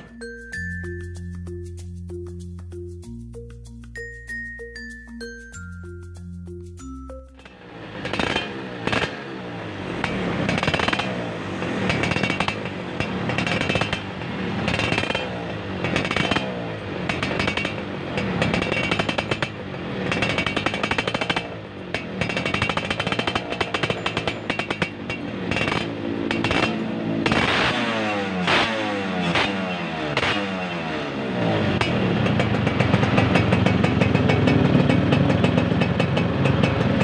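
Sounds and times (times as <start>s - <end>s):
two-stroke engine revving: 7.4s - 37.0s.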